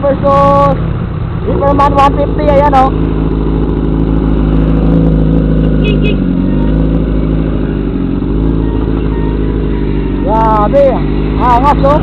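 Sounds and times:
steady rushing noise: 0:00.0 - 0:06.0
motorcycle engines running: 0:00.0 - 0:12.0.

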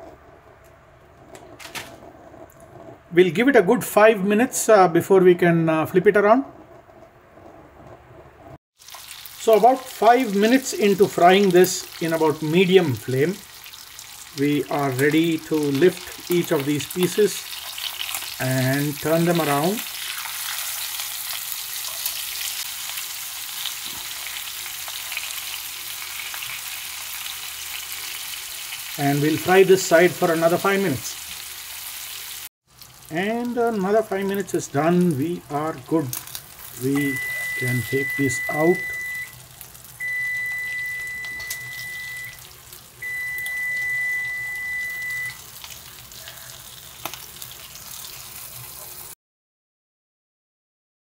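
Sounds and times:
oil spattering crackle: 0:08.8 - 0:29.6, 0:30.2 - 0:43.9, 0:45.3 - 0:49.0
fish sizzling in oil: 0:08.8 - 0:49.2
high electronic beep: 0:36.9 - 0:39.3, 0:40.0 - 0:42.4, 0:43.0 - 0:45.4.

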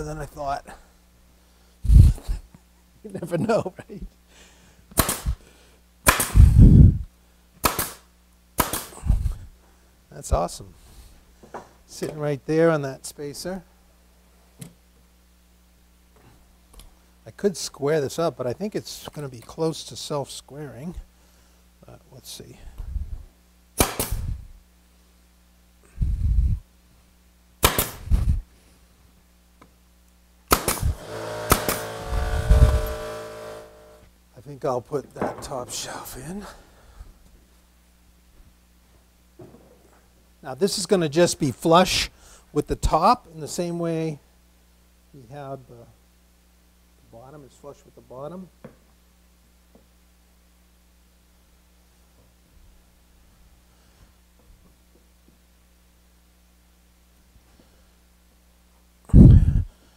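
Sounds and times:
pneumatic nailer firing pops: 0:04.9 - 0:05.4, 0:06.0 - 0:06.4, 0:07.6 - 0:08.0, 0:08.6 - 0:09.0, 0:23.8 - 0:24.3, 0:27.6 - 0:28.1, 0:30.5 - 0:34.0
steady motor hum: 0:30.5 - 0:34.1.

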